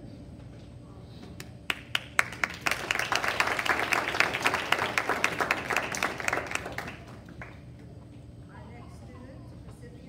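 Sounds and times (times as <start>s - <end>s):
audience applauding: 1.7s - 7.6s.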